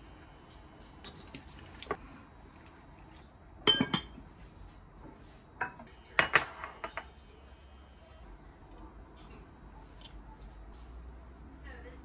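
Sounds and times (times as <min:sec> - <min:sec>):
ceramic dish clinking on countertop: 0:03.7 - 0:04.2.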